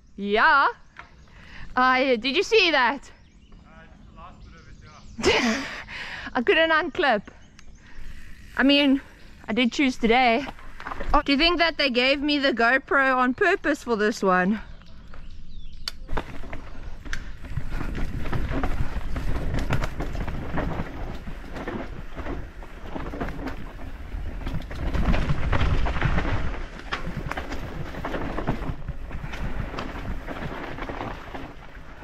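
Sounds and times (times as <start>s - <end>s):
bike chain and frame rattling: 6.5s - 13.9s, 15.0s - 32.0s
tyres rumbling on dirt: 7.8s - 14.4s, 16.1s - 32.0s.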